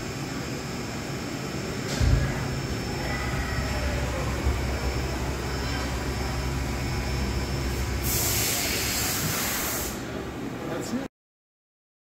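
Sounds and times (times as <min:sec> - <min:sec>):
machine hum: 0:00.0 - 0:10.7
loud hiss: 0:07.7 - 0:10.1.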